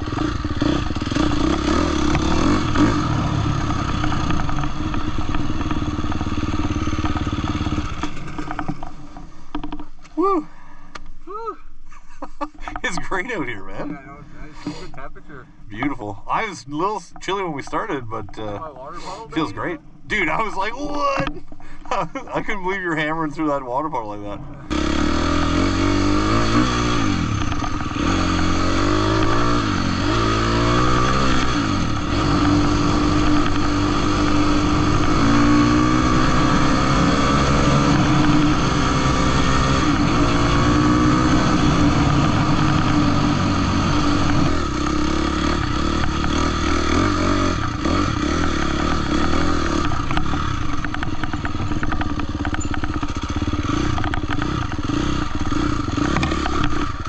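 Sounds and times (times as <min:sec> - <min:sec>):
dirt bike engine revving: 0:00.0 - 0:09.9, 0:22.0 - 0:57.0.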